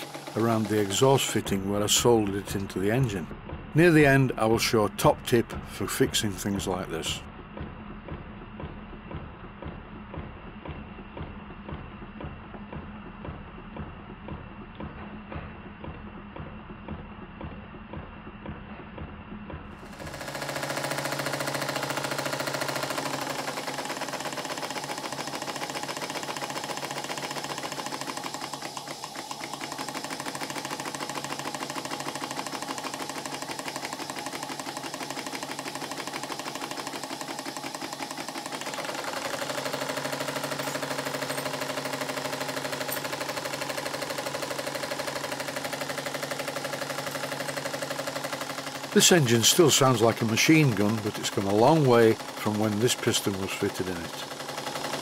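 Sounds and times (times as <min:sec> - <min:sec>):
model steam engine beating fast: 0:00.0 - 0:07.2, 0:19.8 - 0:55.0.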